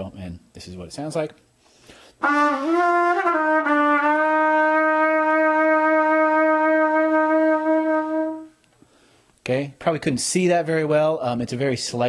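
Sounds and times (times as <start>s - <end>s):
trumpet notes with vibrato: 2.2s - 8.6s.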